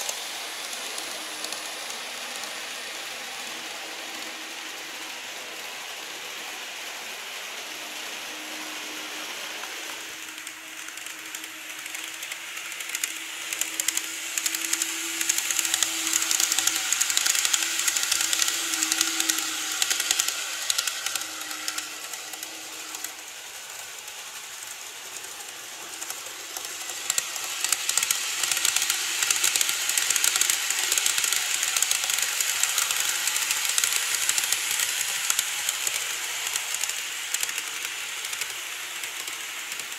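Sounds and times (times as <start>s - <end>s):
model train wheels rattling: 0.0s - 39.9s.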